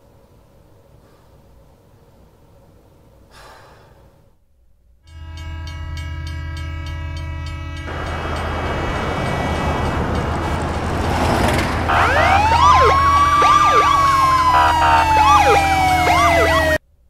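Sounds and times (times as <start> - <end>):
train horn: 5.1 - 16.8
loud rushing noise: 7.9 - 16.8.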